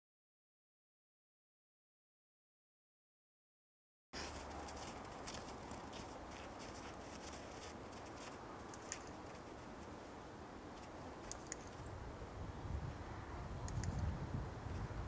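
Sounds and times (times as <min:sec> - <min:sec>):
footsteps crunching on snow: 0:04.2 - 0:10.0
small clicks: 0:10.8 - 0:11.8, 0:13.6 - 0:14.1.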